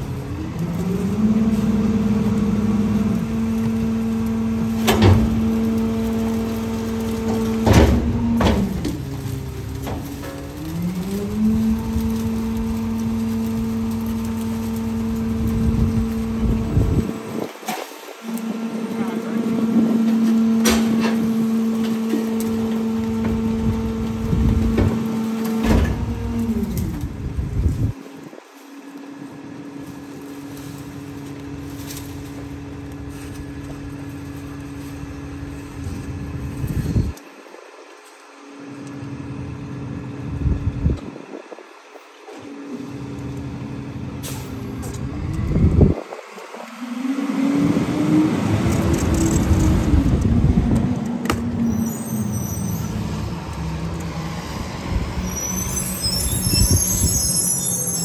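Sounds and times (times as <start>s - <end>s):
diesel engine revving: 0.0s - 28.0s, 42.2s - 58.0s.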